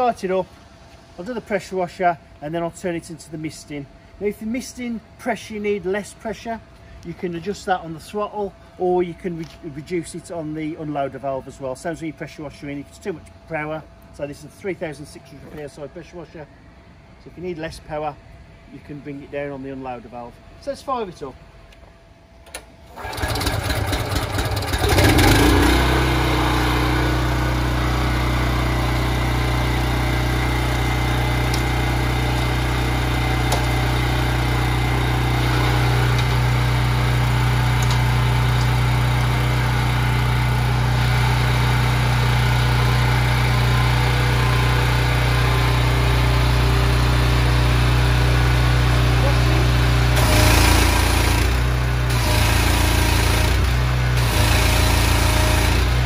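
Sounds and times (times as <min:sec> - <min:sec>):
recoil cord pull start: 0:22.4 - 0:25.8, 0:50.2 - 0:56.0
pressure washer engine running: 0:23.0 - 0:56.0.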